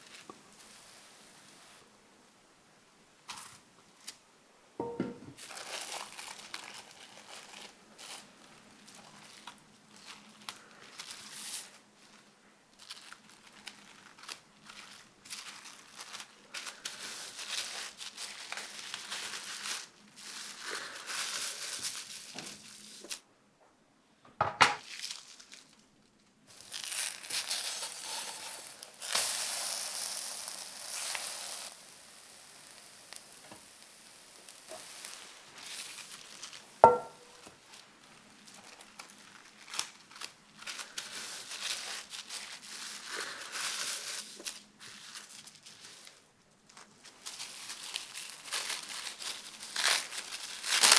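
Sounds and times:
baking paper crinkling: 0:05.4 - 0:23.2, 0:24.8 - 0:50.9
sharp knock: 0:36.8 - 0:37.4.

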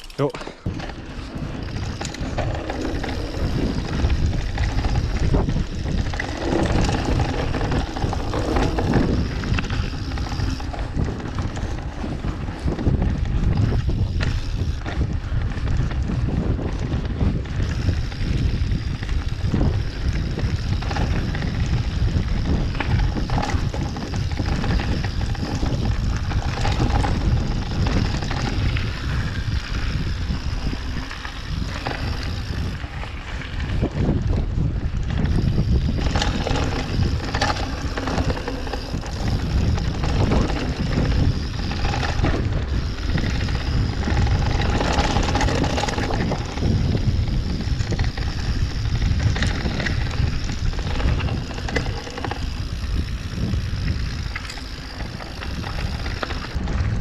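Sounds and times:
bike knocks and rattles: 0:00.0 - 0:57.0
low tyre rumble: 0:00.0 - 0:57.0
wind buffeting microphone: 0:00.0 - 0:57.0.

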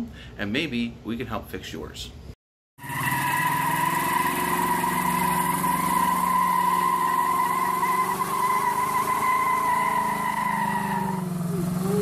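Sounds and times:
engine at high revs: 0:02.8 - 0:12.0
tyres squealing: 0:03.0 - 0:12.0.

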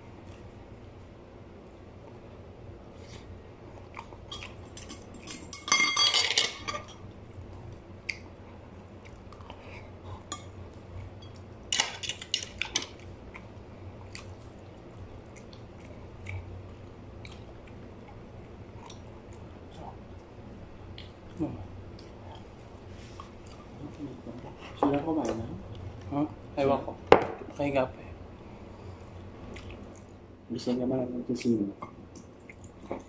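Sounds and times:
chewing: 0:07.5 - 0:11.5, 0:12.2 - 0:24.5, 0:29.1 - 0:30.2, 0:32.1 - 0:33.0.

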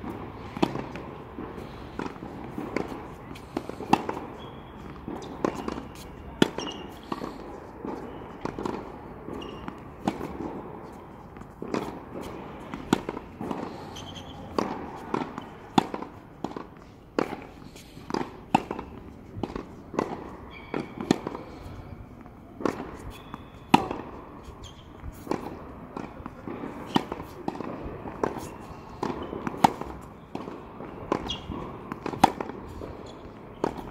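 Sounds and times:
ball bouncing on hard court: 0:22.6 - 0:33.9.

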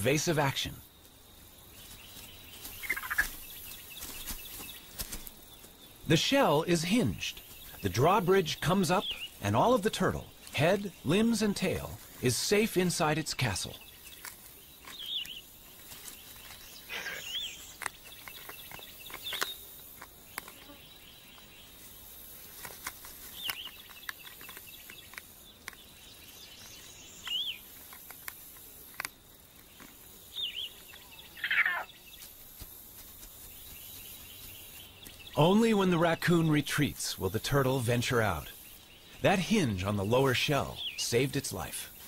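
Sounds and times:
faint insect hum: 0:00.0 - 0:42.0
long falling bird call: 0:30.3 - 0:32.3.

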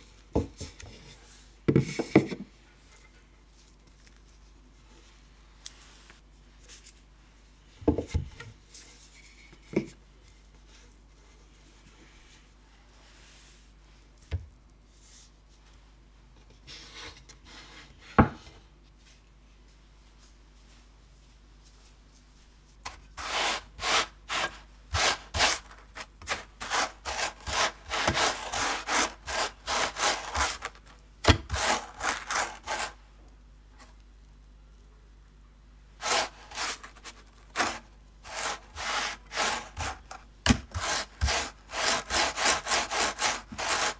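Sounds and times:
dough rubbing through sugar: 0:23.1 - 0:33.0, 0:36.0 - 0:43.9.

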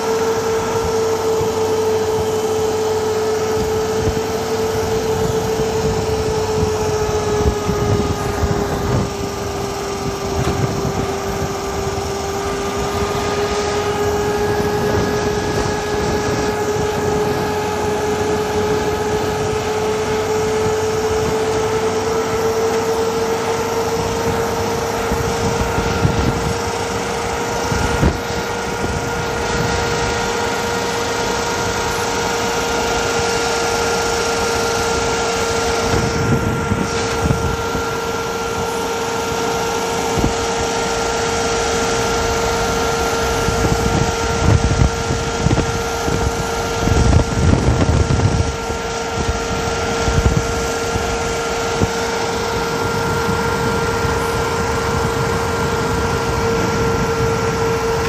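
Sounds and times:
steady whine: 0:00.0 - 0:58.0
vehicle engine and road noise: 0:00.0 - 0:58.0.

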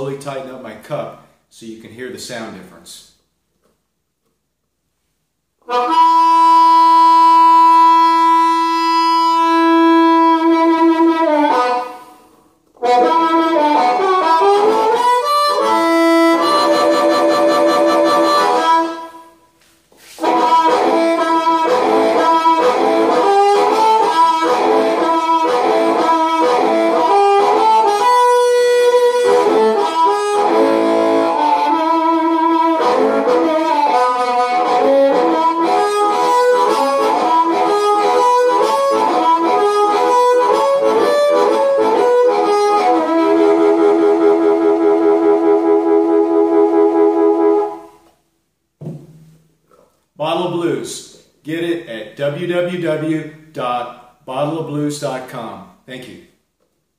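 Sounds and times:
amplified blues harmonica: 0:05.6 - 0:48.2.

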